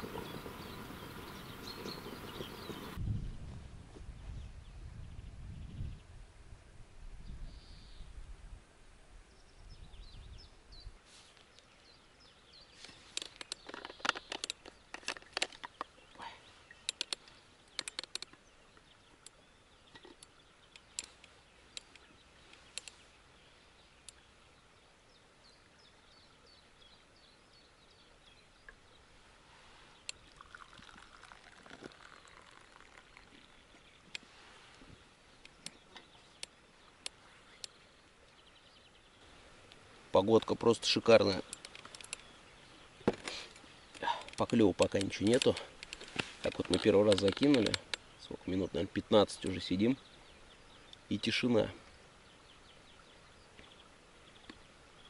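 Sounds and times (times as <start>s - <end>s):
tea poured from thermos: 0.0s - 3.0s, 30.0s - 33.8s
faint birdsong: 0.0s - 3.3s, 7.2s - 8.2s, 9.2s - 55.0s
crackling clicks and rustles: 12.8s - 16.0s, 16.8s - 23.0s, 30.0s - 37.8s, 39.6s - 42.3s, 43.0s - 48.1s.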